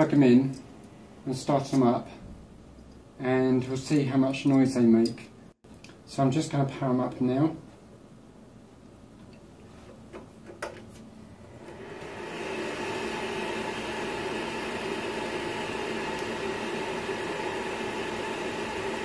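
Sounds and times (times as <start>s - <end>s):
cooling fans whirring loudly: 11.2s - 19.0s.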